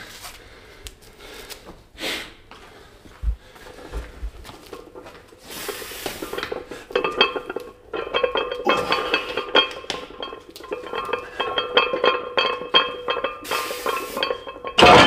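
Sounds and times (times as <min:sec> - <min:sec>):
metal gym weights clinking: 0:06.1 - 0:15.0.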